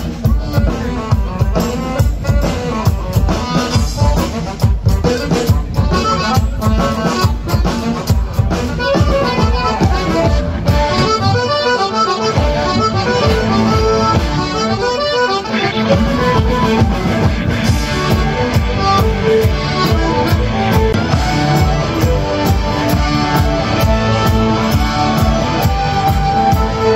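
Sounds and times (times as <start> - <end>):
accordion: 0.0 - 26.9
fiddle: 0.0 - 26.9
steady drum beat: 0.0 - 26.9.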